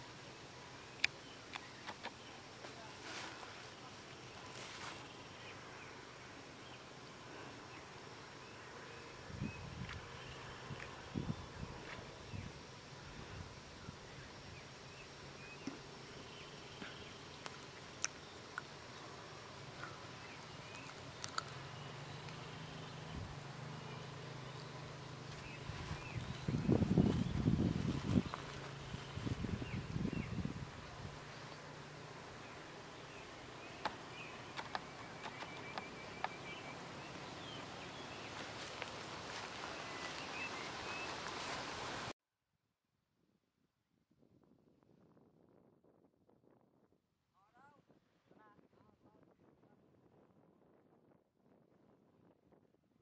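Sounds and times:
steady hiss with high tone: 0:00.0 - 0:42.2.

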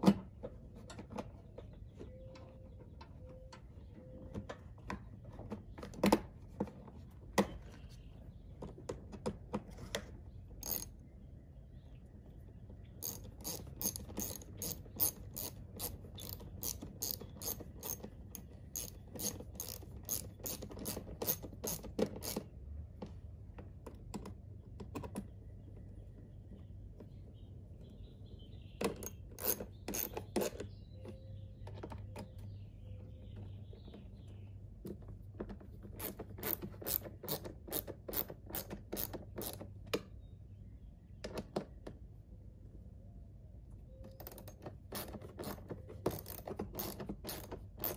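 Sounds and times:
hand ratchet clicking: 0:10.6 - 0:10.9, 0:13.0 - 0:22.4, 0:29.4 - 0:30.6, 0:36.0 - 0:39.6, 0:44.2 - 0:47.9.

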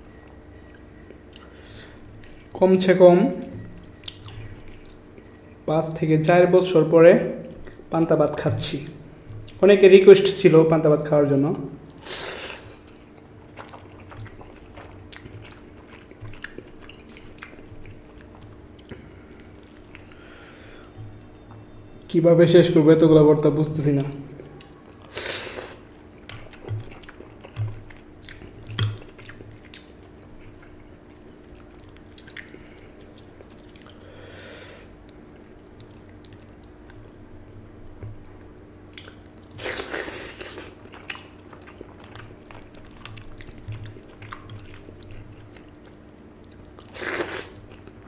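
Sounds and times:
faint steady hum: 0:00.0 - 0:48.0
wet chewing: 0:03.4 - 0:05.3, 0:11.8 - 0:22.1, 0:24.0 - 0:34.2, 0:34.8 - 0:37.2, 0:37.8 - 0:48.0.

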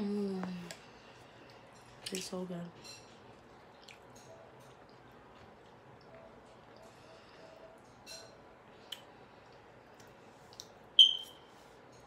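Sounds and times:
faint chewing: 0:03.1 - 0:07.9, 0:08.8 - 0:10.8
soft mouth clicks: 0:08.9 - 0:09.1.

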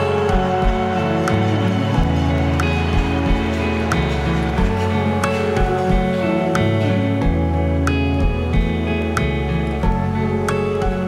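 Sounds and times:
soft instrumental music: 0:00.0 - 0:11.0.

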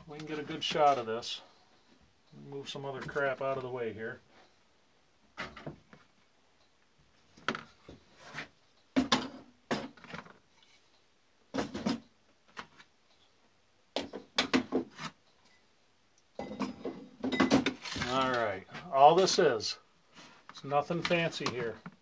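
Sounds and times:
tools set down on wooden workbench: 0:09.0 - 0:10.4, 0:11.5 - 0:12.7, 0:16.4 - 0:18.2.

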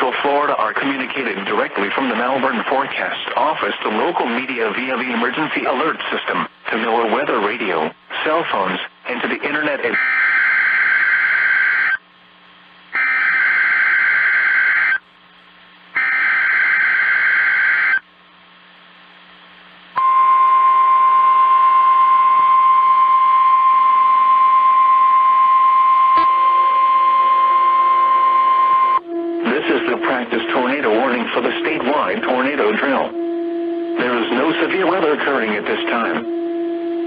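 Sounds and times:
steady warning alarm tone: 0:09.9 - 0:12.0, 0:12.9 - 0:15.0, 0:16.0 - 0:18.0, 0:20.0 - 0:37.0.

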